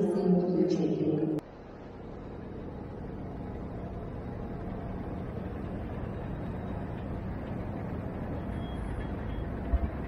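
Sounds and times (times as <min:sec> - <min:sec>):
airport terminal room noise: 0:00.0 - 0:10.0.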